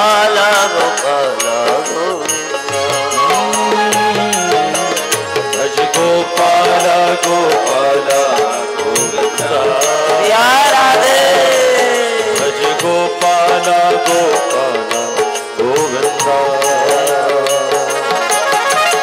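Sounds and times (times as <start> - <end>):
man singing devotional melody: 0.0 - 19.0
hand percussion strokes: 1.5 - 10.3
sustained instrument notes: 2.7 - 6.2.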